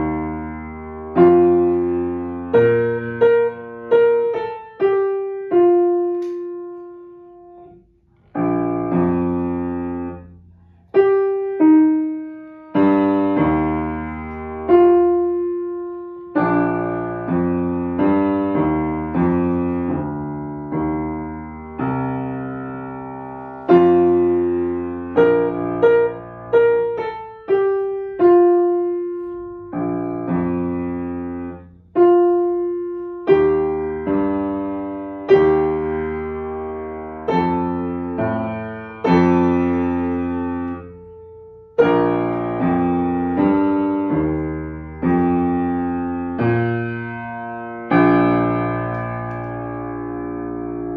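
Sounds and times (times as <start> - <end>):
slow beginner piano piece: 0.0 - 50.9.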